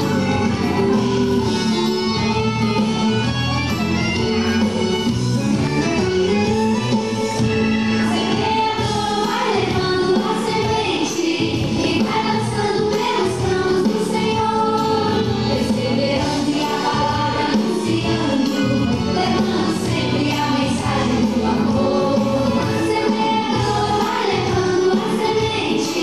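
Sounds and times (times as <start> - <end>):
voices singing over dance beat: 7.2 - 26.0.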